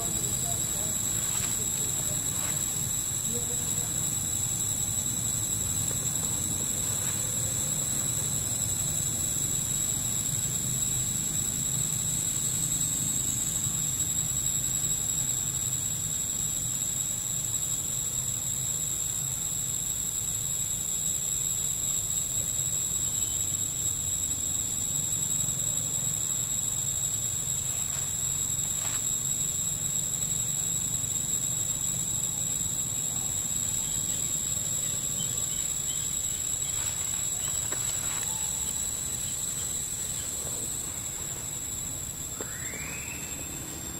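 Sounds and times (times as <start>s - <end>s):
low background hum: 0.0s - 15.1s
insects droning: 0.0s - 43.9s.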